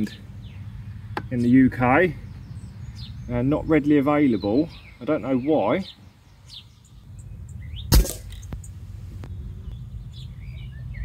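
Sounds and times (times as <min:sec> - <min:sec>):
air rifle shot: 0:07.9 - 0:08.6.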